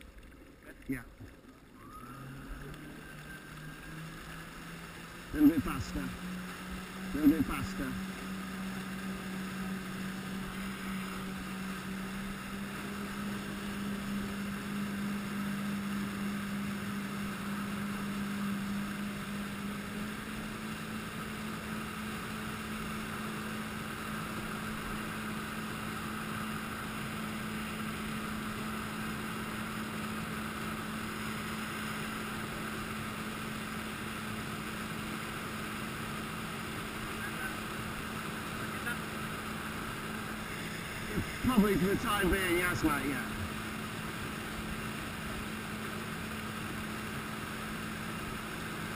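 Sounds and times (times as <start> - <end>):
jet ski engine running: 0.0 - 48.9
jet wash spray rushing: 21.2 - 48.9.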